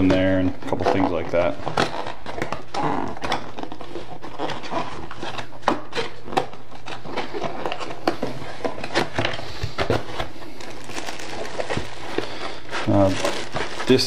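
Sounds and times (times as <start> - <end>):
steady low hum: 0.0 - 14.0
cardboard box rustling: 3.2 - 14.0.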